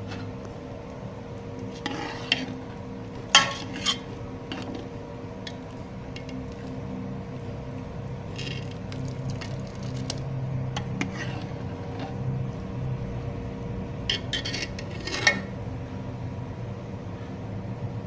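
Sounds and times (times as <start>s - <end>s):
steady background hum: 0.0s - 18.0s
metal spoon scraping metal pot: 1.7s - 6.7s, 8.3s - 12.3s, 14.1s - 15.6s.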